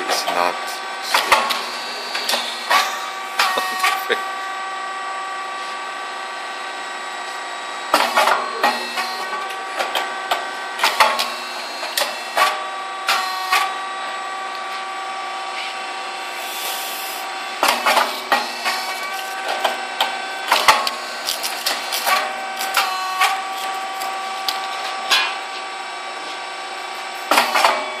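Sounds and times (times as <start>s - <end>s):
sharp mechanical clacks and knocks: 0.0s - 4.1s, 7.9s - 13.7s, 17.6s - 23.5s, 27.3s - 27.9s
machine humming with high tones: 0.0s - 28.0s.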